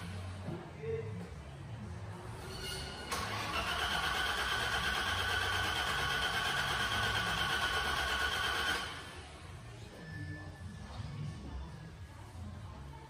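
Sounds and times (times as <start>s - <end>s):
car engine starting and running: 3.1s - 9.1s.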